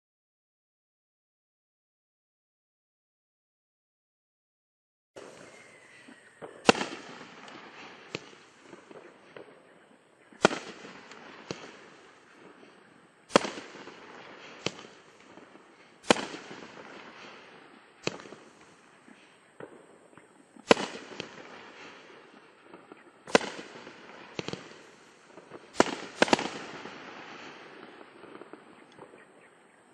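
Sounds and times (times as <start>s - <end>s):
firework hiss: 5.2s - 29.2s
firework launch and burst bangs: 6.4s - 29.2s.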